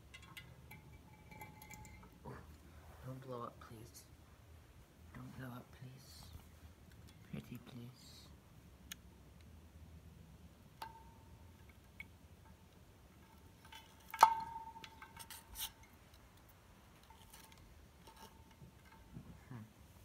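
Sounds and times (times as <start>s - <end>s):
hard parts clicking and clinking: 0.0s - 2.6s, 10.8s - 19.4s.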